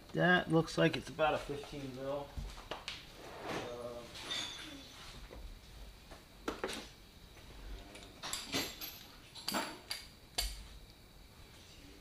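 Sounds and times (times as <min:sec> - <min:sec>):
metal tools clinking in drawer: 0:04.2 - 0:04.9, 0:08.0 - 0:10.0.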